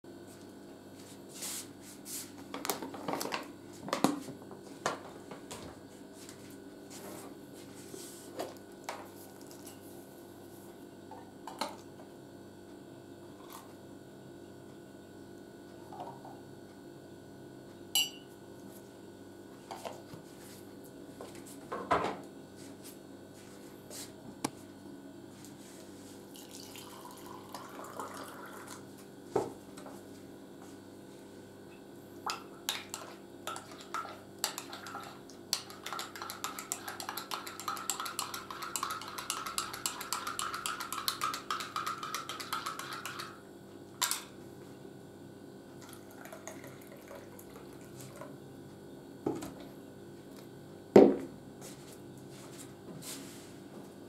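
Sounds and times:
teaspoon clinking in ceramic mug: 33.5 - 43.4.

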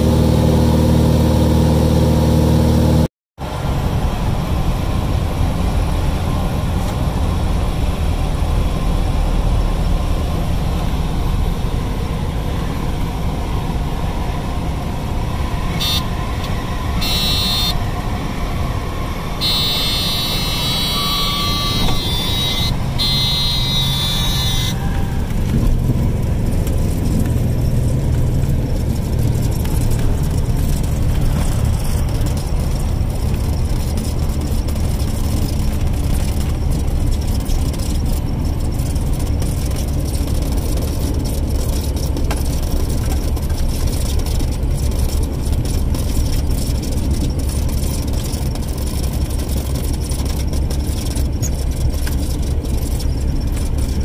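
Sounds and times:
propeller airplane engine droning: 0.0 - 54.0
buzzing warning horn: 15.7 - 18.1, 19.2 - 25.4.

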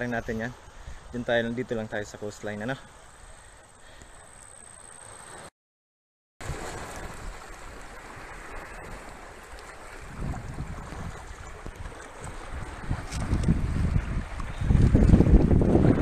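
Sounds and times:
sea waves washing over rocks: 6.4 - 16.0
wind buffeting microphone: 9.8 - 16.0.

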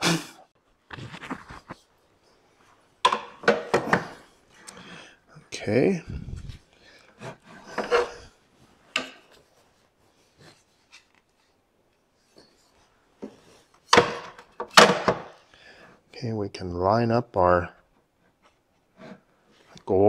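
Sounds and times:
metal slide scraping wood: 7.1 - 8.3, 18.9 - 19.3.

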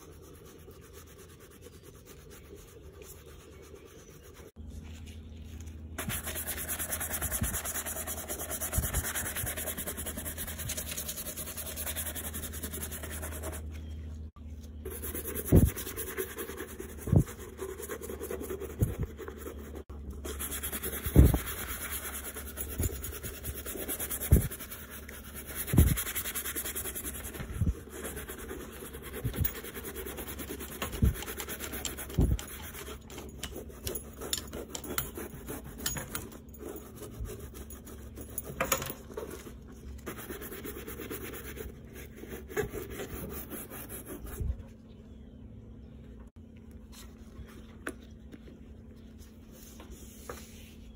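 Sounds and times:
brush scrubbing leather: 0.0 - 4.5, 6.0 - 13.5, 14.9 - 38.4.

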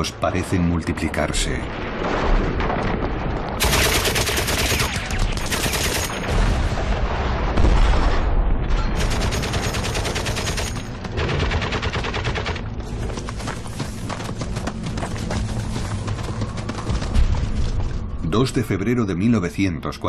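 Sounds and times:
rapid machine-gun fire: 3.6 - 6.4, 9.0 - 12.7.

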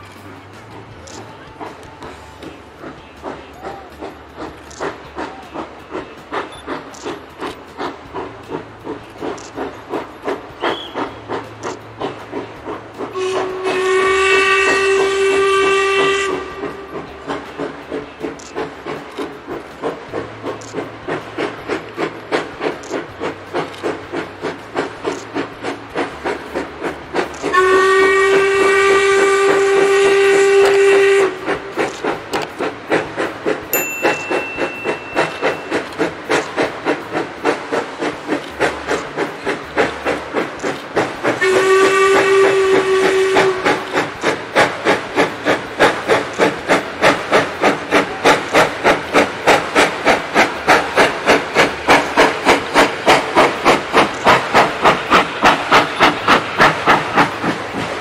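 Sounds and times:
steam locomotive chuffing: 0.0 - 58.0
steam whistle blasts: 10.6 - 11.2, 13.1 - 17.1, 27.4 - 31.5, 41.4 - 44.1.

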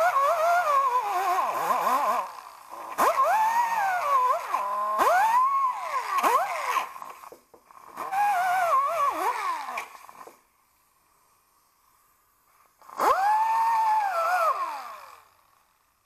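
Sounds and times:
pneumatic die grinder whining: 0.0 - 10.6, 12.5 - 16.0.

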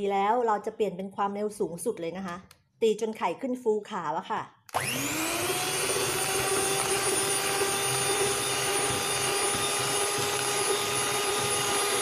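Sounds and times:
electric hand mixer whining: 4.7 - 12.0.

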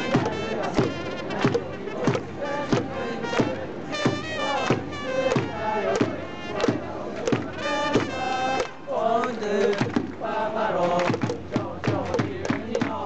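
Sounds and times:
drum beat: 0.0 - 8.2, 9.6 - 10.2, 10.9 - 13.0
trumpets playing: 0.0 - 8.9
fans singing: 0.0 - 13.0.

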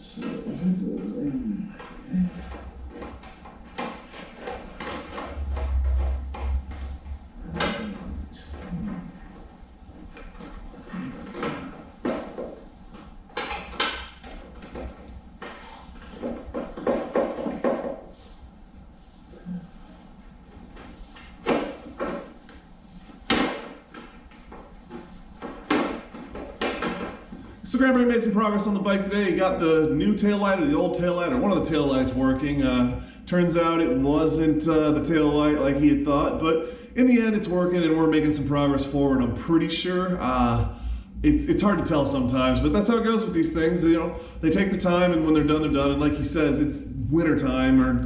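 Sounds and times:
tools knocking and clunking: 1.8 - 18.2, 23.3 - 27.4
low rumble: 5.2 - 9.2.

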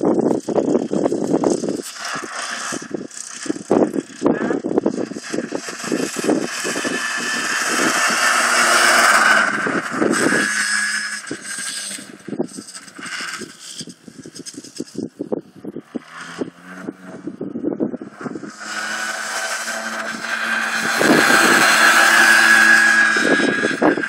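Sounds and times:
wind buffeting microphone: 0.0 - 1.8, 13.3 - 24.0
quad bike engine passing: 0.0 - 24.0.

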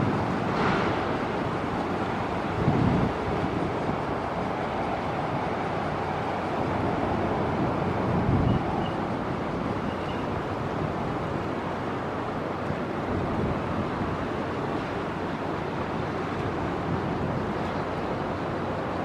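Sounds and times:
wind on microphone: 0.0 - 11.4, 15.7 - 19.0
low rumble of open water: 0.0 - 19.0.

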